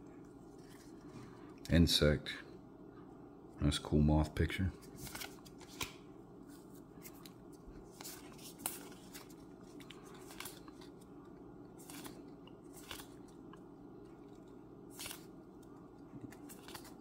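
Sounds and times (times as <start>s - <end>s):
steady low hum: 0.0s - 17.0s
cards swishing in hands: 4.8s - 11.0s, 11.8s - 13.3s, 14.4s - 17.0s.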